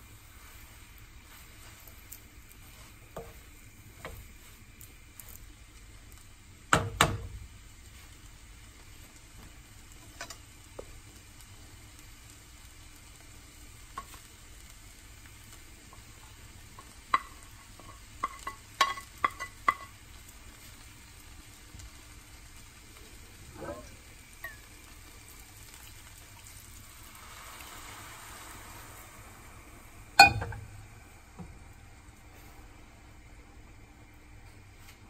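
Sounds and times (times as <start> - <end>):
noodles sizzling in a pan: 0.0 - 35.0
wooden spatula knocking pan: 6.7 - 7.4, 16.8 - 19.9.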